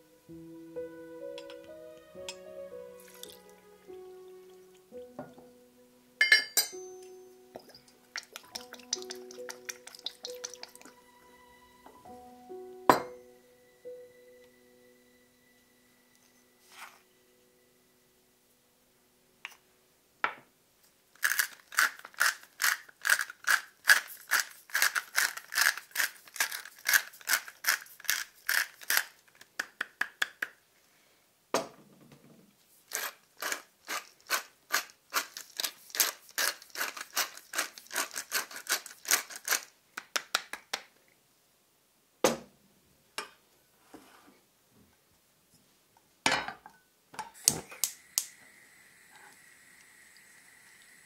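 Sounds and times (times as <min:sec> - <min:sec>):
spice mill ratcheting clicks: 0:21.2 - 0:29.1.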